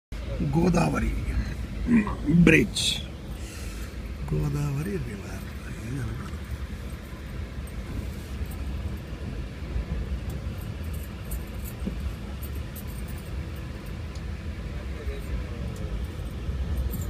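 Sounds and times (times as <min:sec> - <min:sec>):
train rumble: 0:00.2 - 0:17.0
rushing air: 0:01.2 - 0:04.2.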